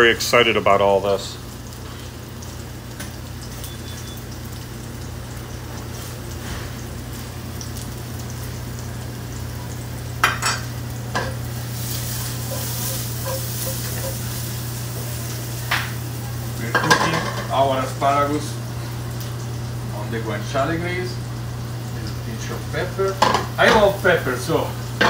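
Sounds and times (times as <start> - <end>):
vegetables sizzling in a frying pan: 0.0 - 25.0
metal utensil clattering on pan: 12.5 - 14.2, 16.7 - 17.5, 23.2 - 23.9.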